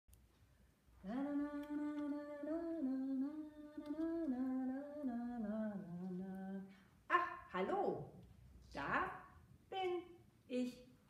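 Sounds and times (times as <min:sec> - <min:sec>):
woman humming: 0:01.0 - 0:06.7.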